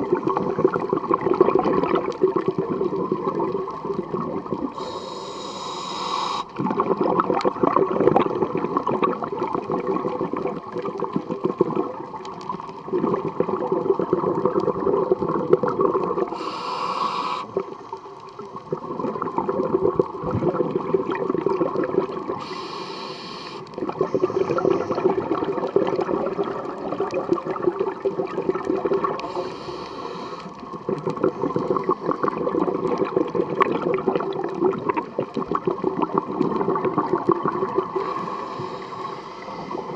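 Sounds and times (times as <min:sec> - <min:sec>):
gurgling exhaled bubbles: 0:00.0 - 0:05.6, 0:06.2 - 0:22.8, 0:23.5 - 0:39.9
regulator hissing inhalations: 0:04.8 - 0:06.6, 0:16.3 - 0:17.6, 0:22.4 - 0:25.0, 0:29.2 - 0:30.6, 0:38.0 - 0:39.9.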